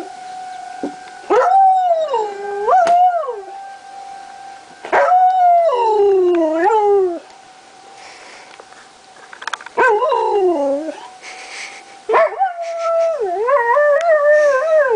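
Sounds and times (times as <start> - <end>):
warning siren: 0.0 - 8.6
dog howling: 4.9 - 7.3.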